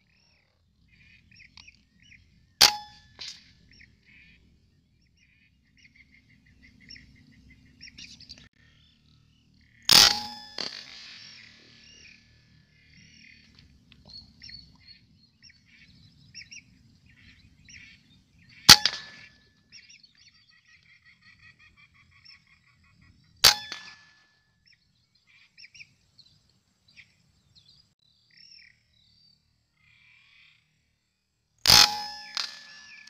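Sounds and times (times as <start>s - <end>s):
high bird calls: 0.0s - 24.0s
rifle shots: 9.9s - 12.0s, 18.7s - 19.3s.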